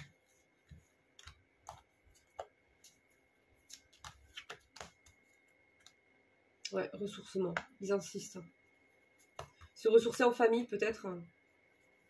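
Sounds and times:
cards clicking on a table: 3.6 - 5.2.

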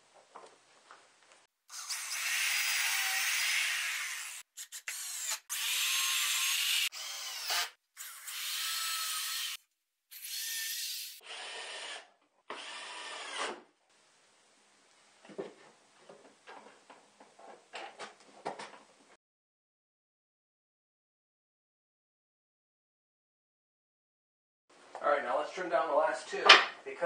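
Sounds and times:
cordless drill driving screws: 1.7 - 13.6.

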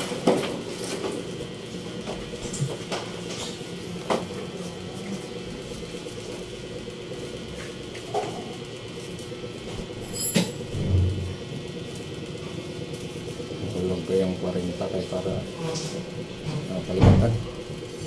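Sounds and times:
electric hum of appliances: 0.0 - 18.0
heavy low thump: 16.9 - 17.5.

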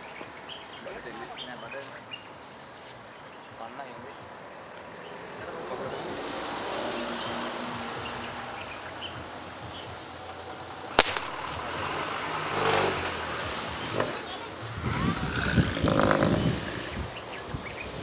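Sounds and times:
low engine hum: 4.9 - 18.0
dart gun sharp crack: 11.0 - 11.4.

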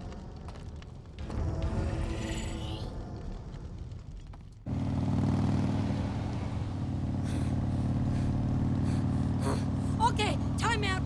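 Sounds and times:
motorcycle engine cruising: 4.6 - 11.0.

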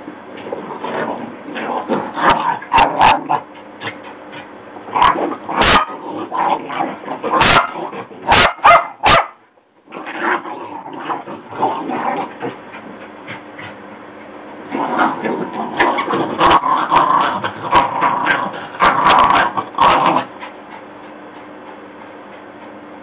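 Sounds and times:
dogs growling: 0.4 - 8.3, 9.9 - 13.8, 14.7 - 21.3
dogs barking: 2.2 - 3.5, 4.9 - 6.0, 6.7 - 9.4.

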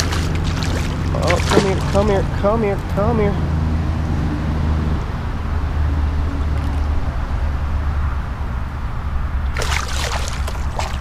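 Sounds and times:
fish splashing in water: 0.0 - 2.3, 9.4 - 11.0
steady low rumble: 0.0 - 4.2.

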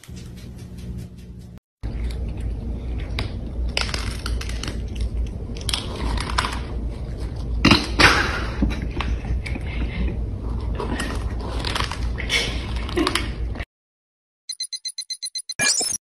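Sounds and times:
cats crunching dry kibble: 1.8 - 7.7, 10.4 - 13.2.

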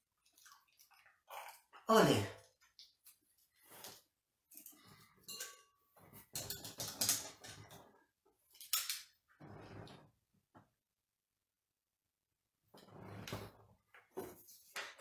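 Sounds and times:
clinks and knocks against glass: 5.2 - 7.6.

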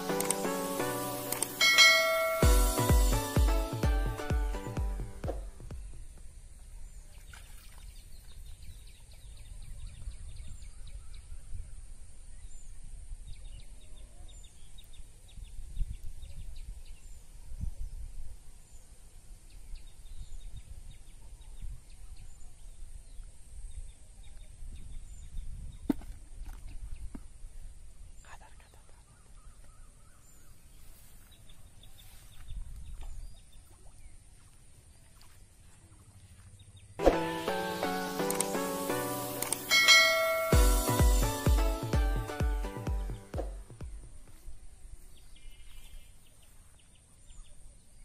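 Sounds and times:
sharp click: 0.1 - 0.4, 1.3 - 1.6, 38.2 - 38.6, 39.3 - 39.7
wind rumble on microphone: 8.3 - 28.3, 32.3 - 33.8.

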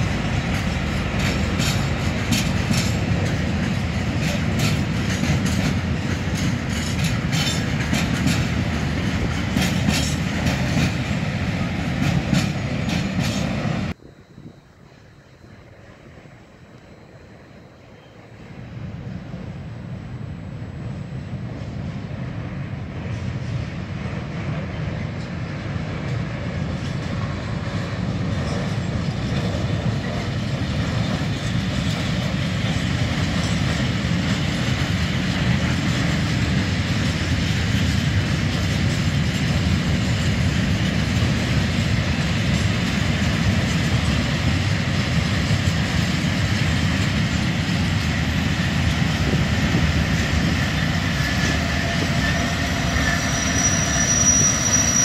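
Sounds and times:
freight wagons rumbling and clattering: 0.0 - 14.0, 25.0 - 55.0
diesel locomotive: 0.0 - 55.0
high wheel squeal: 50.6 - 55.0.

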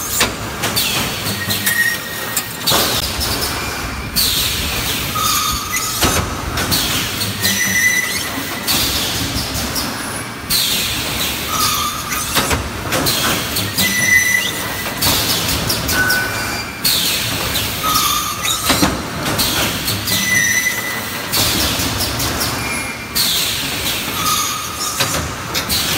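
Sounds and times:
short machine squeals: 0.8 - 2.7, 5.1 - 6.1, 7.2 - 9.1, 11.5 - 12.4, 13.6 - 14.9, 15.9 - 18.8, 19.8 - 21.4, 24.1 - 25.2.

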